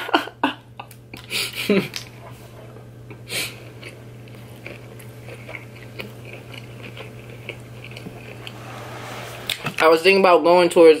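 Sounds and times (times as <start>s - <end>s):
person chewing food: 3.1s - 8.6s.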